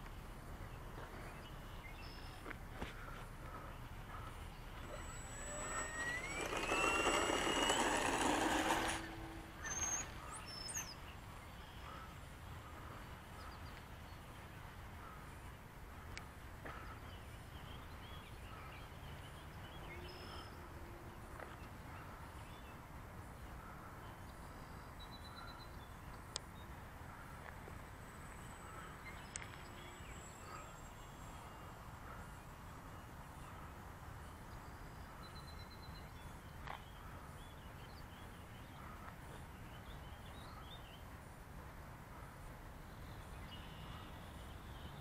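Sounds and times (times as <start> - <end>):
model plane motor whine: 4.1 - 10.9.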